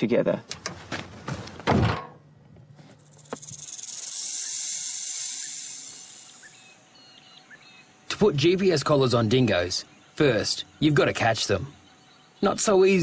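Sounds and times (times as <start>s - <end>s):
high steady hiss: 2.8s - 13.0s.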